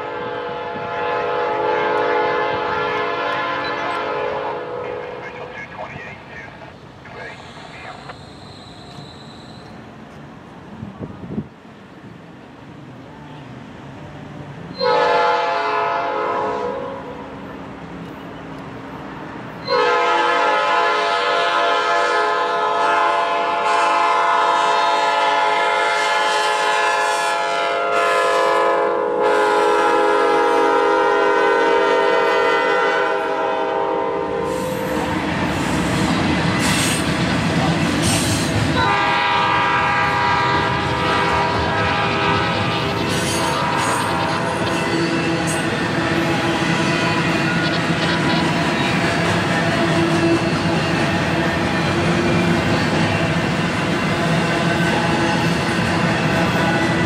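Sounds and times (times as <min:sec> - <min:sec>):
locomotive air horn blasts: 0:00.0 - 0:05.2, 0:14.8 - 0:17.1, 0:19.6 - 0:34.6, 0:38.8 - 0:48.5
train wheels rumbling and clattering: 0:34.2 - 0:57.0.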